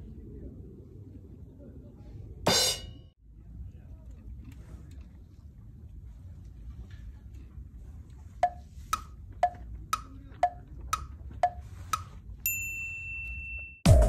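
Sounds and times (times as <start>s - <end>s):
percussive ticks: 8.4s - 12.1s.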